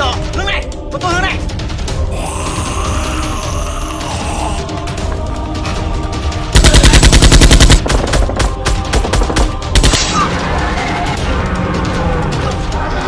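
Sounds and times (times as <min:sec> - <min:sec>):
background music: 0:00.0 - 0:13.0
automatic gunfire burst: 0:06.6 - 0:08.2.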